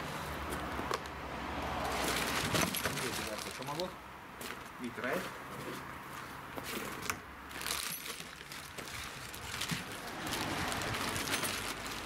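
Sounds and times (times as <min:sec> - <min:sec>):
plastic packaging crinkling: 0:02.1 - 0:03.8, 0:07.5 - 0:12.0.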